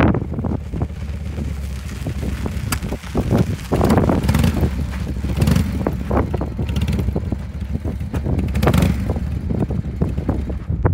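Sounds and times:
motorcycle engine idling: 0.1 - 10.9.

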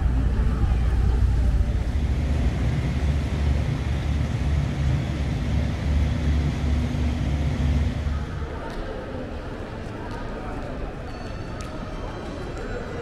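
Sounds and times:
engine rumble: 0.0 - 8.7
faint hum: 0.0 - 8.7.

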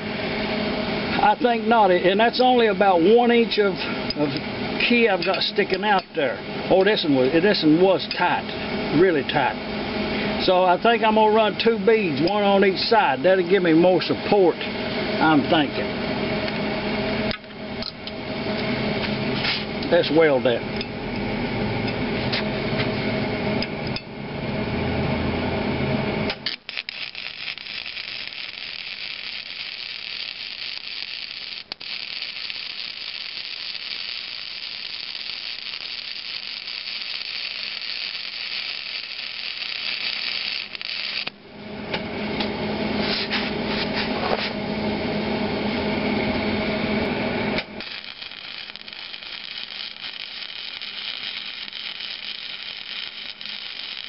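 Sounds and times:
welding arc crackling and hissing: 1.1 - 9.6, 26.3 - 41.4, 47.0 - 54.0.

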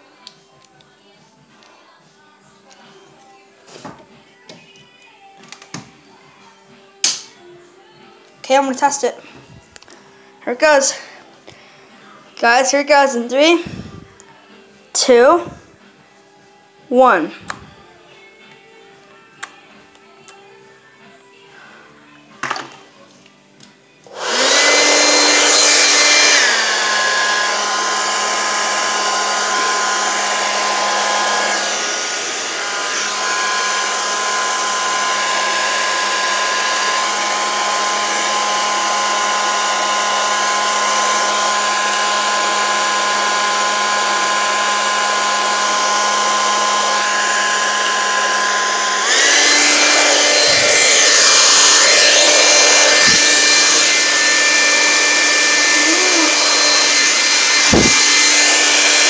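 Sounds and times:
hair dryer blowing: 8.6 - 11.3, 12.0 - 14.2, 24.1 - 59.0.

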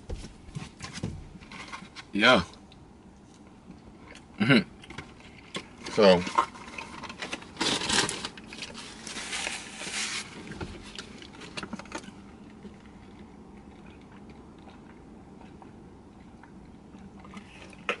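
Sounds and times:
food packaging crinkling: 5.9 - 12.1.

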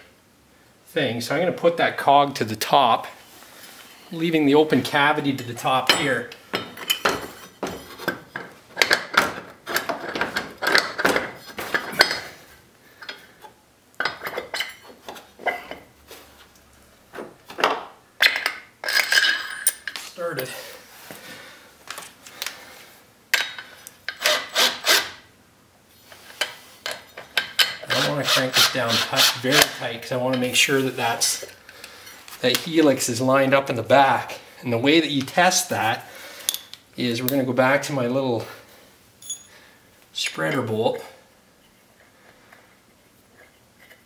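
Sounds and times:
metal parts clinking and scraping: 14.0 - 15.8, 18.2 - 20.2, 39.2 - 39.6.

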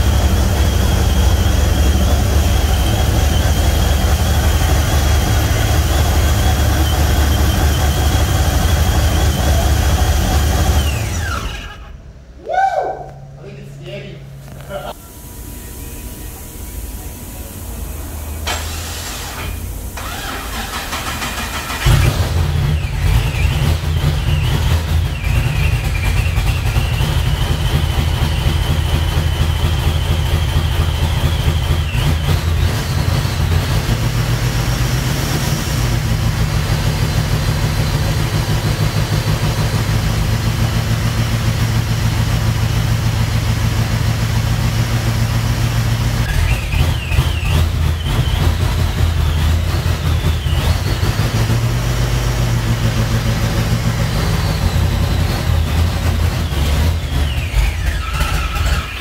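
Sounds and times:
high whine: 0.0 - 20.0
car engine starting and idling: 0.0 - 59.0.

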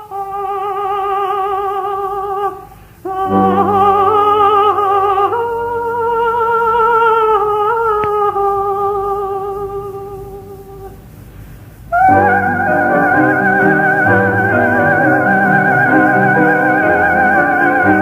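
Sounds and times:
soprano singing vocalise: 0.0 - 18.0
low sustained accompaniment: 3.1 - 7.7, 11.9 - 18.0.

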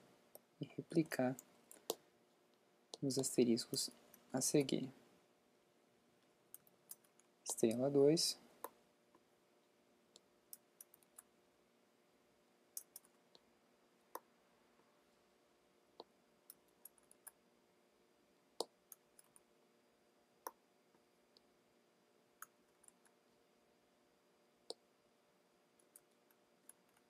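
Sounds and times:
faint steady hum: 0.0 - 27.0
mouse and keyboard clicking: 6.5 - 7.8, 10.2 - 11.3, 12.8 - 13.4.

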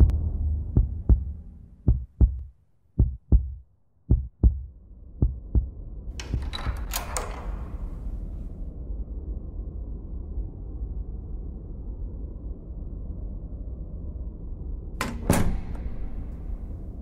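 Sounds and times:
low rumbling drone: 0.0 - 2.4
heartbeat thumps: 0.0 - 5.8.

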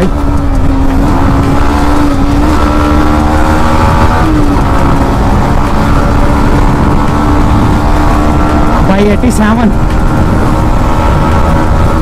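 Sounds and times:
motorcycle engine at high speed: 0.0 - 12.0
wind rumble on microphone: 0.0 - 12.0.

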